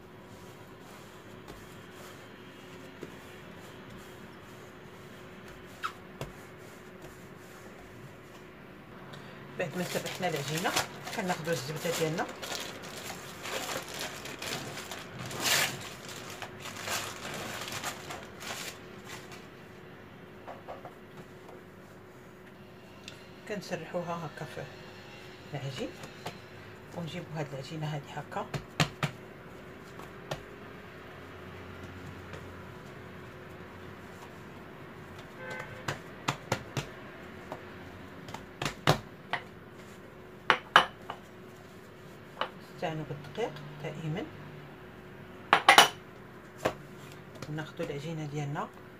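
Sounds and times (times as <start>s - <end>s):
baking paper rustling: 0.0s - 8.6s, 9.6s - 19.7s, 31.8s - 37.0s
handling butter on dough: 0.0s - 8.6s, 9.6s - 19.5s.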